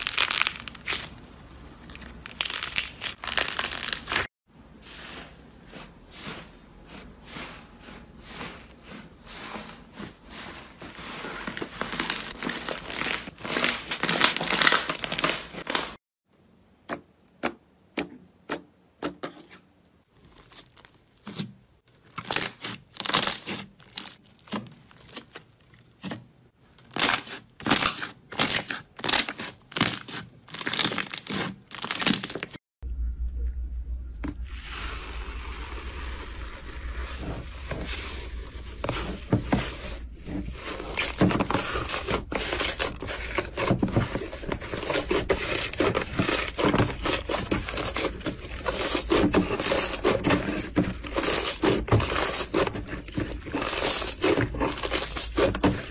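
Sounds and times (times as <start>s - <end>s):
foam slime crackling: 1.8s - 15.9s
low hum: 32.8s - 39.3s.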